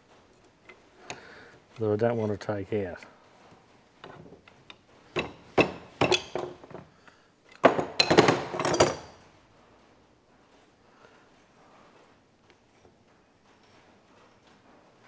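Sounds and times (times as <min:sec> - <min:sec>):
metal tools knocking and clinking: 0:04.0 - 0:06.9, 0:07.5 - 0:09.2.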